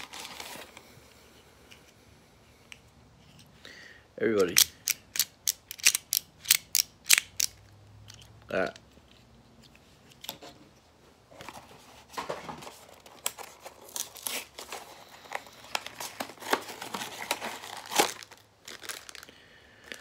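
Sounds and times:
plastic packaging crackling: 0:00.0 - 0:00.8, 0:12.7 - 0:20.0.

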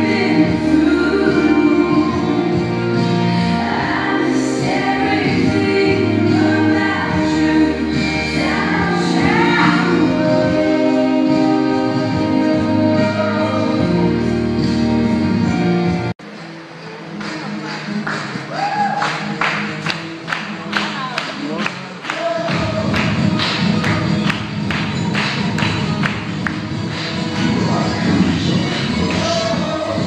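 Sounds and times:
person singing: 0:00.0 - 0:14.4.

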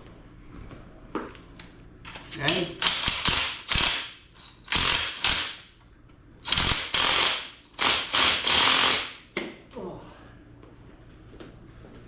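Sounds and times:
impact wrench hammering: 0:02.8 - 0:05.6, 0:06.5 - 0:09.4.

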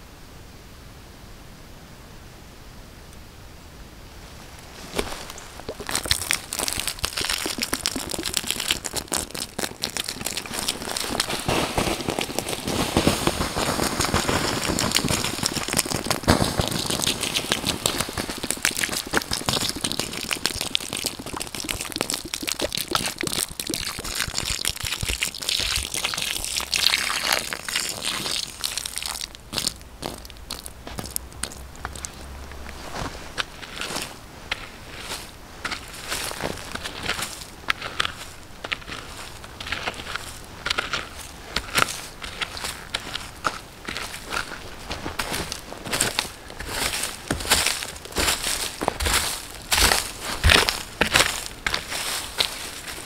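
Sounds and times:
water hissing on hot ashes: 0:05.0 - 0:32.7.

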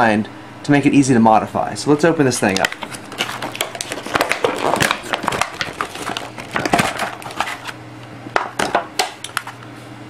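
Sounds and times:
hard plastic clicking and cracking: 0:02.4 - 0:09.6.

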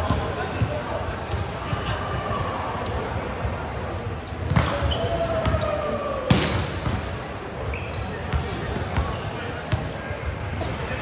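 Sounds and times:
basketball bouncing on court: 0:00.0 - 0:01.6, 0:04.4 - 0:05.7, 0:06.3 - 0:07.2, 0:08.2 - 0:10.8
shoe squeaks: 0:00.3 - 0:01.3, 0:02.0 - 0:05.6, 0:06.9 - 0:09.2, 0:09.9 - 0:10.5.

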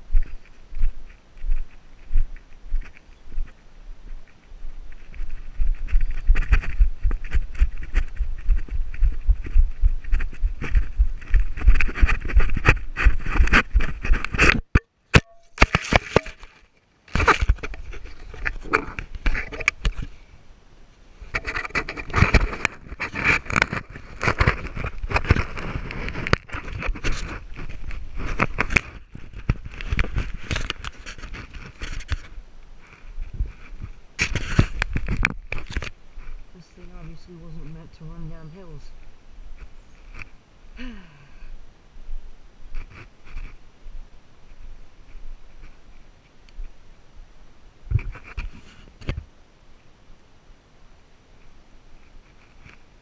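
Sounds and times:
running footsteps on grass: 0:00.0 - 0:14.4
rustling at camera housing: 0:04.2 - 0:20.2, 0:21.2 - 0:36.4.

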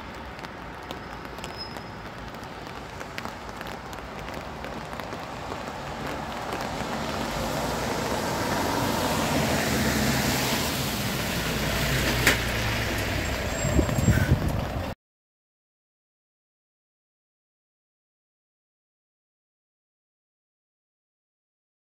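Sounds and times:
car tyres hissing on wet road: 0:00.0 - 0:14.8.

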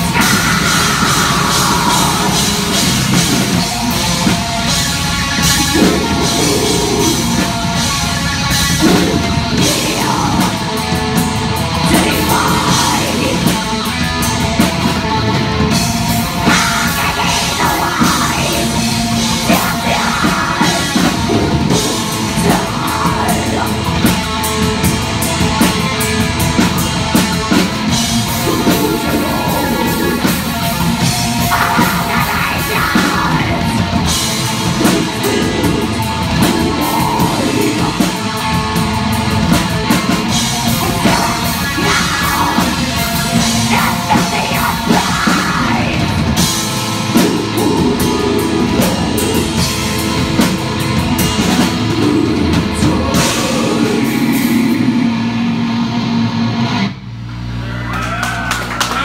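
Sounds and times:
fast drums and cymbals: 0:00.0 - 0:55.5
distorted electric guitars and bass: 0:00.0 - 0:59.0
woman harsh vocals: 0:05.6 - 0:07.6.

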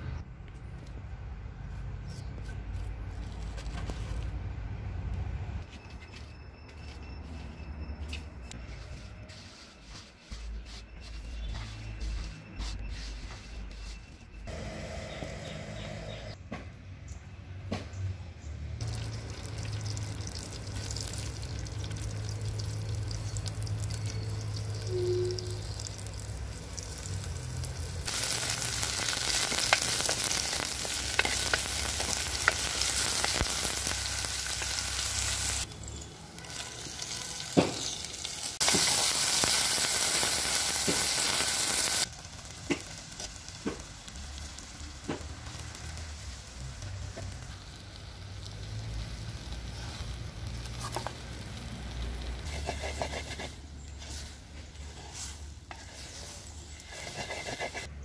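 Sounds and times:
food sizzling in hot oil: 0:18.8 - 0:52.6.

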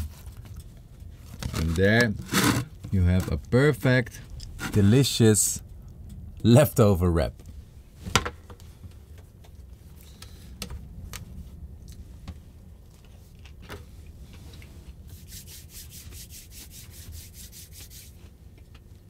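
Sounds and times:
low rumble: 0:03.4 - 0:15.0
hands rubbing together: 0:15.1 - 0:18.3.

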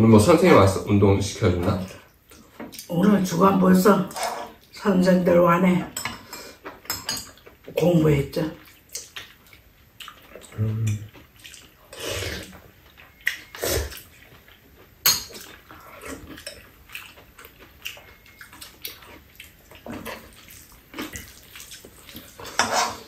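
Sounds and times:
wet mouth eating noises: 0:08.6 - 0:22.5.

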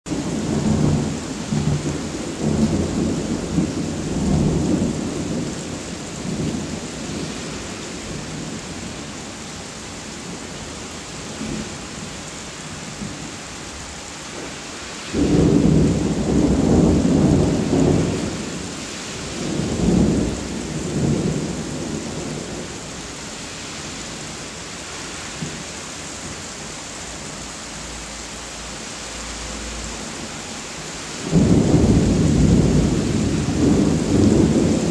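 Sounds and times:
steady rain: 0:00.1 - 0:34.9
thunder rumbling: 0:14.3 - 0:23.0, 0:31.2 - 0:34.9.

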